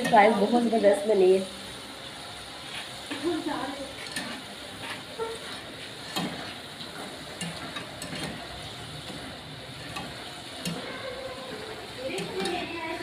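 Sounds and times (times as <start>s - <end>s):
chips sizzling in hot oil: 0.0s - 13.0s
wire skimmer clicking against pot: 9.9s - 10.9s, 12.1s - 12.7s.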